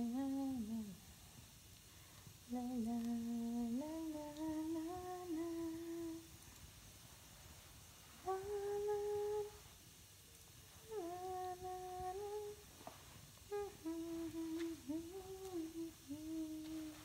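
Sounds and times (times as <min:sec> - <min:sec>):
woman humming: 0:00.0 - 0:01.0, 0:02.5 - 0:06.3, 0:08.2 - 0:09.6, 0:10.8 - 0:12.6, 0:13.5 - 0:17.0.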